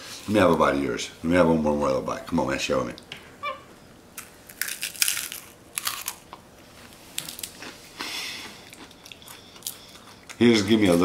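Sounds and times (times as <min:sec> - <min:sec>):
crunchy snack chewing: 0:04.2 - 0:06.4, 0:07.1 - 0:10.4.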